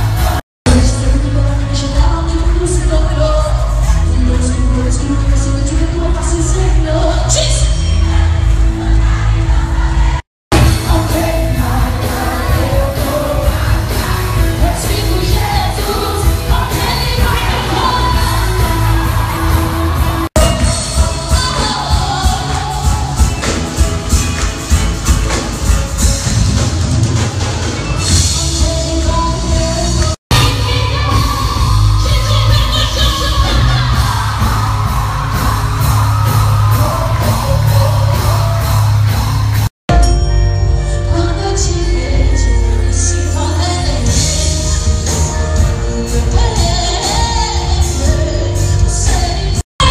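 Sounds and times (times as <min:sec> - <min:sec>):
amplified lead vocal singing: 0:00.0 - 0:23.8, 0:28.4 - 0:38.8
heavy bass: 0:00.0 - 0:49.9
live band playing: 0:00.0 - 0:49.9
crowd yelling and whooping: 0:16.6 - 0:25.4, 0:30.4 - 0:39.7.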